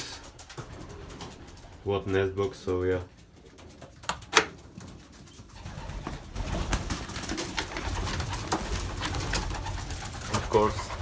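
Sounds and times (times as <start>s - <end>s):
pigeons cooing: 3.1s - 11.0s.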